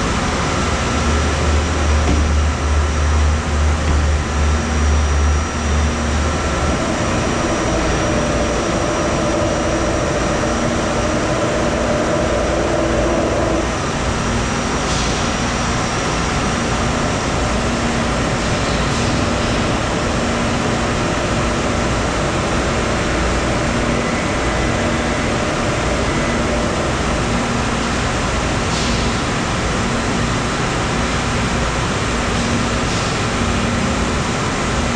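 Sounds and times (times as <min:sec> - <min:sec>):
machines humming and hissing: 0:00.0 - 0:34.9.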